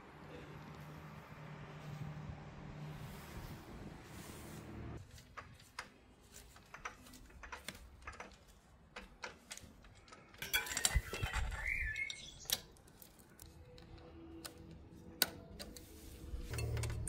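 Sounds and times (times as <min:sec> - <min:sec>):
small metal parts clinking: 0:06.8 - 0:14.1, 0:16.3 - 0:17.0.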